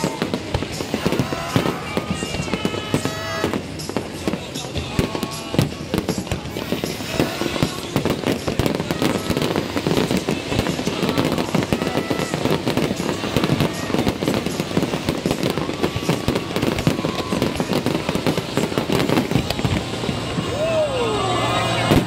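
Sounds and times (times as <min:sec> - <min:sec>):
fireworks bursts and crackling: 0:00.0 - 0:22.0.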